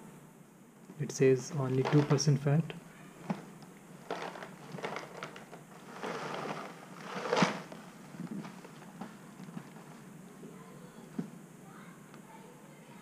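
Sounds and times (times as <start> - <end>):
cereal rustling in box: 1.6 - 2.4, 3.2 - 8.9.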